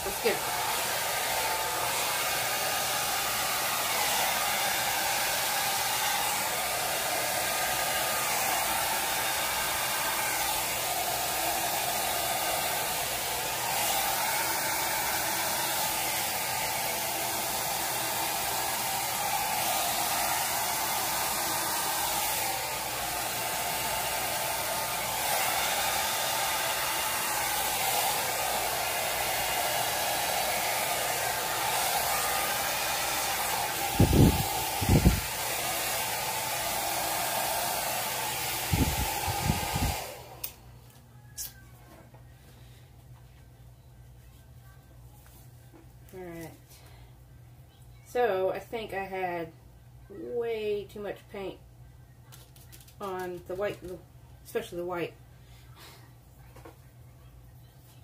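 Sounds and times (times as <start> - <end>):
hair dryer running: 0.0 - 41.0.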